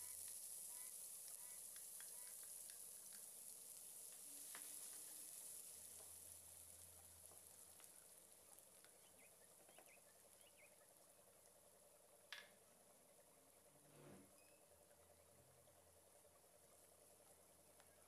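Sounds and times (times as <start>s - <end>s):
spatula stirring onion: 0.0s - 8.2s
onion sizzling in oil: 0.0s - 12.6s.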